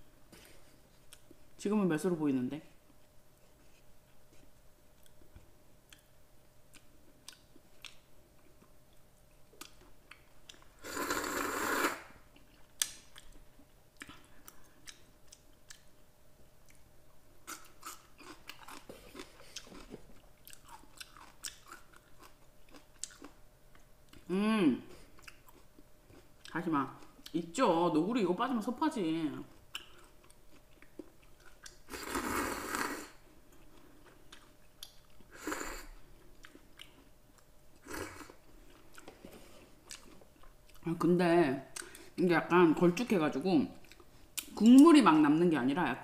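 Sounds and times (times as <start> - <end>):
quiet chewing: 0.3 - 1.6, 2.8 - 24.3, 24.9 - 27.4, 29.4 - 40.9, 43.8 - 44.8
loud noodle slurp: 10.8 - 12.2, 31.9 - 33.2, 35.3 - 35.9.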